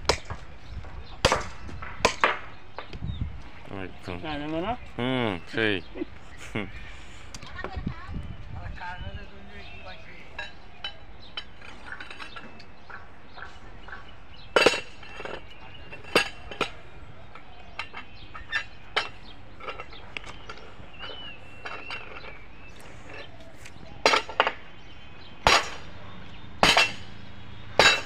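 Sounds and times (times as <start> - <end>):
hammer striking steel track: 26.6 - 28.0.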